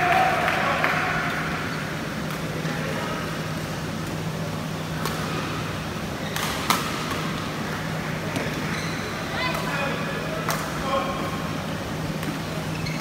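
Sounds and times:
rackets hitting shuttlecock: 6.3s - 7.4s.

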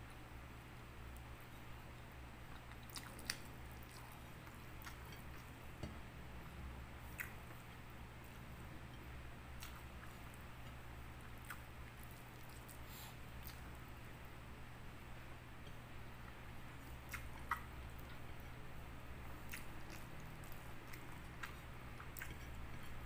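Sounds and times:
chewing and mouth sounds: 2.4s - 5.6s, 7.0s - 8.4s, 9.6s - 13.9s, 16.8s - 18.6s, 19.3s - 23.0s.

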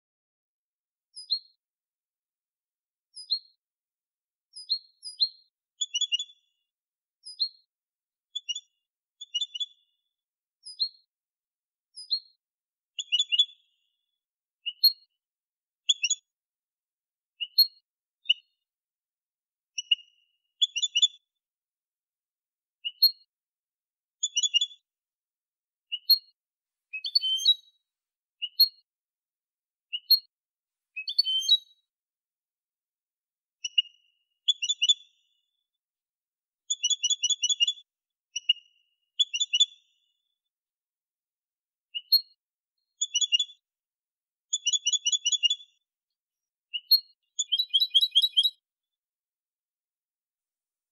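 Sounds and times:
goldfinch chirping song: 1.1s - 1.6s, 3.1s - 3.6s, 4.5s - 6.6s, 7.2s - 7.7s, 8.3s - 10.0s, 10.6s - 11.1s, 11.9s - 14.0s, 14.6s - 15.1s, 15.8s - 16.3s, 17.4s - 18.6s, 19.7s - 21.3s, 22.8s - 23.2s, 24.2s - 24.8s, 25.9s - 27.8s, 28.4s - 28.9s, 29.9s - 30.3s, 30.9s - 31.9s, 33.6s - 35.5s, 36.6s - 40.2s, 41.9s - 43.6s, 44.5s - 45.8s, 46.4s - 48.6s.

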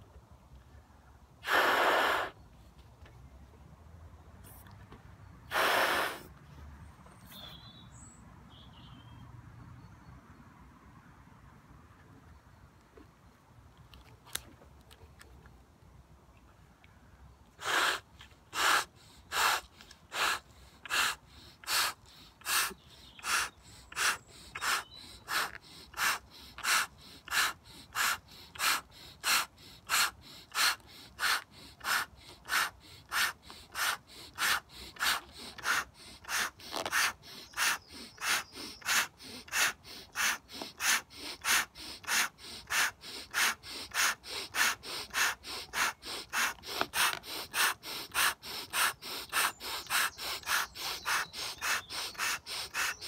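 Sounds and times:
person breathing sharply: 1.4s - 2.4s, 5.5s - 6.3s, 17.6s - 53.0s
puffs into balloon: 1.4s - 2.4s, 5.5s - 6.3s, 17.6s - 53.0s.

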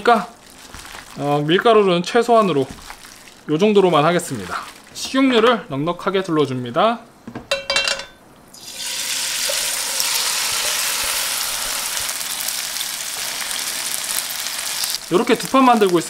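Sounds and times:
batter sizzling in hot oil: 8.5s - 16.0s.

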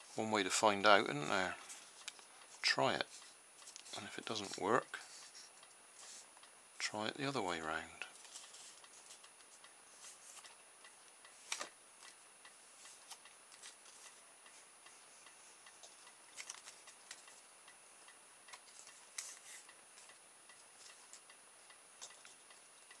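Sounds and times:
plastic strip crinkling: 16.4s - 17.3s.

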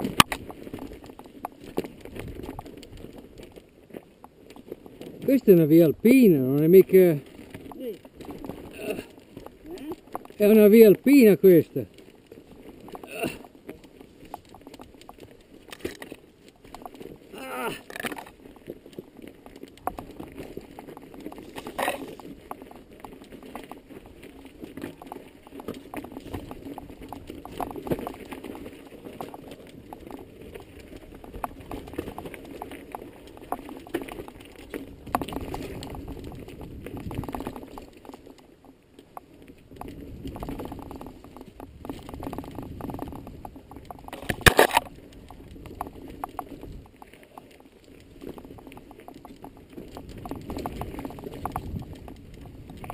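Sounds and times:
tyres crunching over stones: 0.0s - 52.9s
bike clattering: 17.8s - 52.9s.

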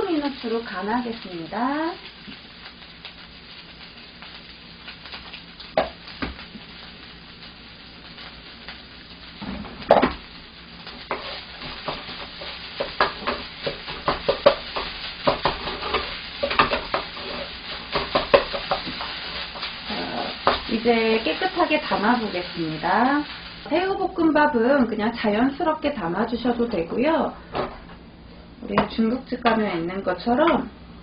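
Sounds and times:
rice sizzling in a frying pan: 0.0s - 31.0s
spatula scraping a pan: 11.0s - 22.6s.

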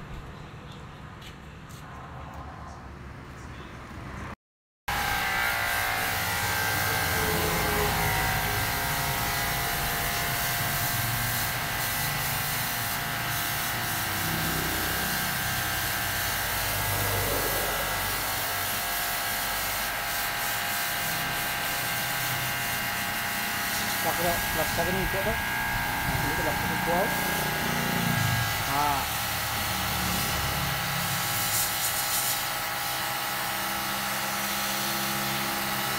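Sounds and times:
pressure washer humming: 4.9s - 35.9s
water jet hissing: 19.4s - 32.6s.

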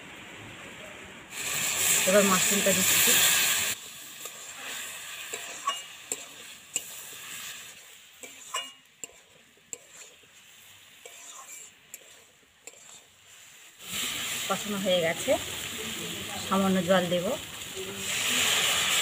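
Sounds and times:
food sizzling in a wok: 0.7s - 19.0s
metal spatula clinking on pan: 5.3s - 7.0s, 8.2s - 10.1s.

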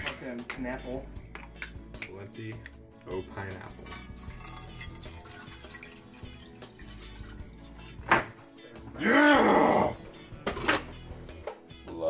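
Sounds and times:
juice splashing in frying pan: 3.7s - 8.1s
man shouting: 9.0s - 10.0s.

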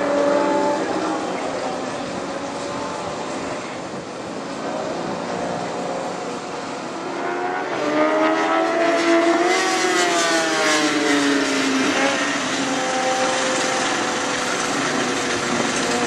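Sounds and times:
distant motorcycles droning: 0.0s - 16.0s
motorcycle passing close by: 7.1s - 14.5s.

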